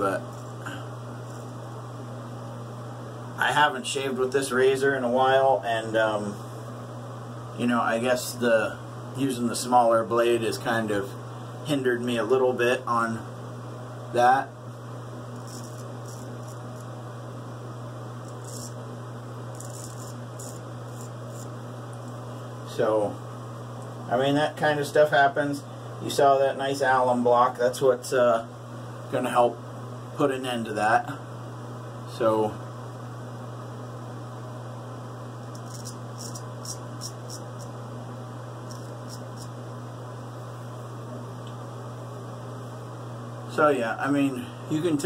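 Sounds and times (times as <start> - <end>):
low electrical hum: 0.0 - 45.0
razor scraping stubble: 15.2 - 17.0, 18.2 - 22.3, 35.5 - 37.8, 38.6 - 39.6.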